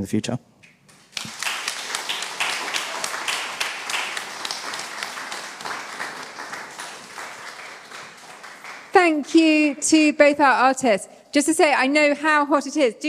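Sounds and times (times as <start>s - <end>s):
audience applauding: 0.9s - 9.8s.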